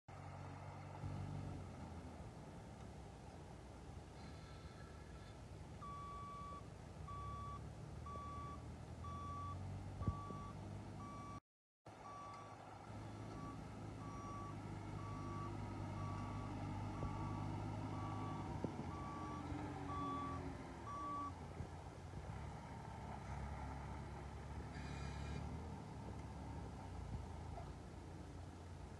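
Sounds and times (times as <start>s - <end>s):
vehicle engine running: 0.1s - 28.9s
reversing alarm beeping: 5.8s - 11.4s, 12.0s - 21.4s.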